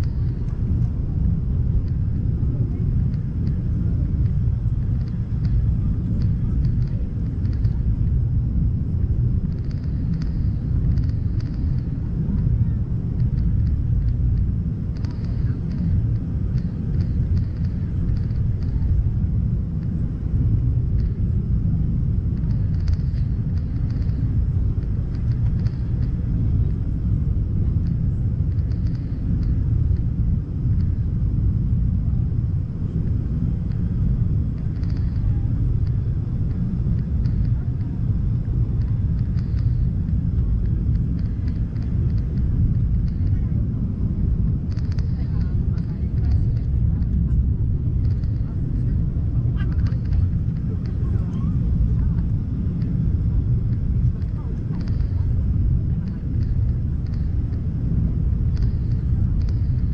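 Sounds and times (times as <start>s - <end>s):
airliner cabin rumble: 0.0s - 59.9s
faint light ticks: 1.8s - 2.0s, 4.2s - 7.9s, 9.4s - 12.5s, 13.2s - 19.0s, 20.9s - 21.2s, 22.4s - 26.8s, 27.8s - 31.0s, 34.6s - 43.5s, 44.7s - 47.4s, 48.0s - 48.5s, 53.7s - 57.7s, 58.4s - 59.9s.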